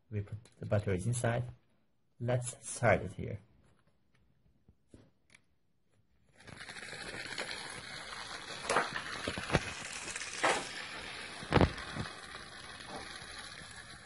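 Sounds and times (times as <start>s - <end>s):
toy engine motor whirring: 6.3s - 14.0s.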